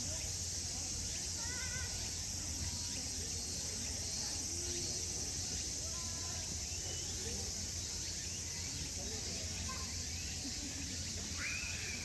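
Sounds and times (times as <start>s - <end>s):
distant chatter of people: 0.0s - 12.0s.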